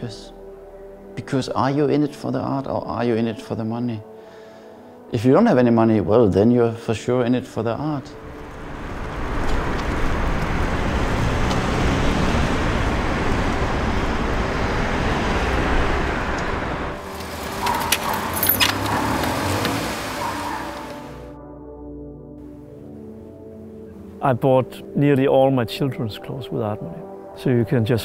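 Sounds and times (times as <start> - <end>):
passing cars rumble: 8.1 - 21.3.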